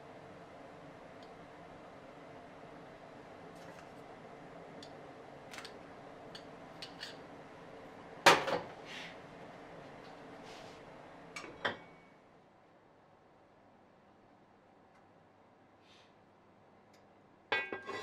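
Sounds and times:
kitchenware clattering: 17.6s - 18.0s.

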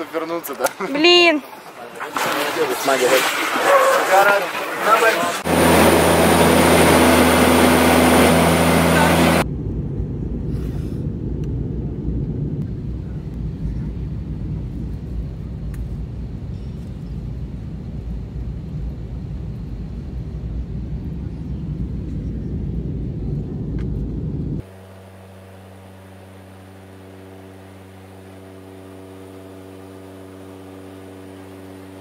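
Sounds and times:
moving vehicle rumble: 1.4s - 24.6s
hum of low held tones: 5.4s - 32.0s.

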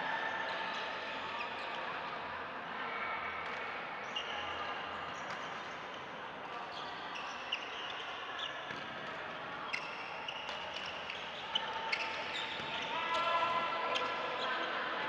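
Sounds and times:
murmur of distant voices: 0.0s - 15.0s
shoes squeaking on floor: 9.7s - 12.7s.

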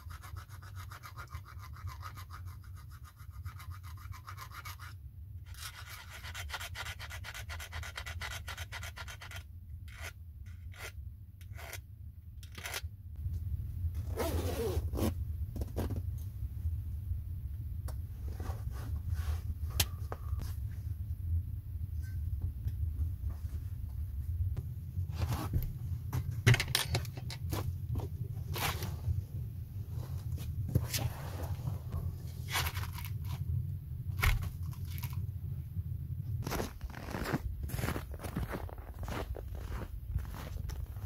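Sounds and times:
file rasping on saw teeth: 0.0s - 11.8s
handling and rustling: 29.9s - 35.3s.

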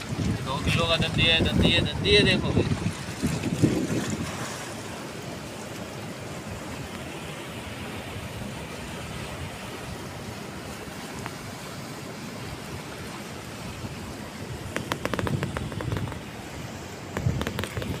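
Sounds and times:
surf washing: 0.0s - 18.0s
wind: 0.0s - 18.0s
sharp clicks and knocks: 14.7s - 16.3s, 17.1s - 18.0s.

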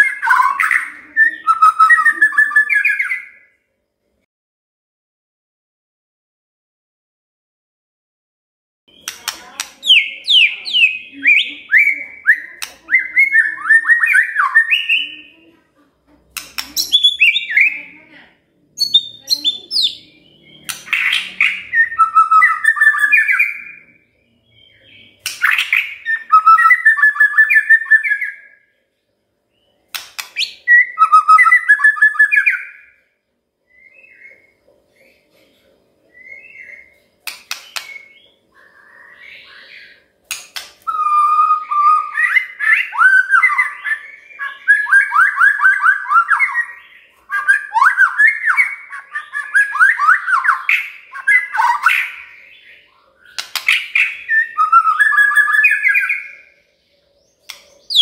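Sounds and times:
songbird whistling: 0.0s - 3.5s, 8.9s - 15.2s, 16.6s - 17.8s, 18.8s - 28.6s, 30.2s - 33.0s, 40.8s - 56.5s
sharp bird clicks: 8.9s - 10.9s, 12.3s - 15.0s, 16.3s - 17.5s, 20.5s - 23.0s, 25.2s - 26.1s, 29.9s - 30.6s, 37.2s - 38.3s, 40.2s - 41.2s, 53.3s - 56.0s, 57.4s - 58.0s.

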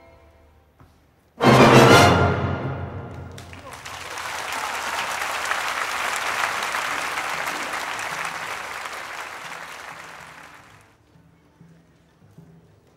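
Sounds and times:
crowd applauding: 3.1s - 11.0s.

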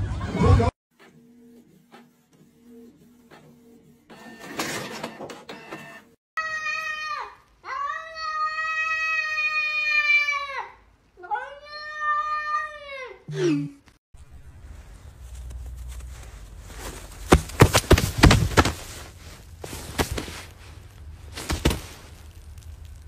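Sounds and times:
whirring and rustling: 14.6s - 23.0s.

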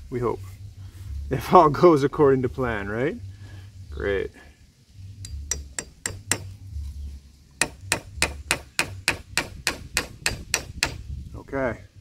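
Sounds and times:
hammer blows on nail: 7.6s - 11.1s.

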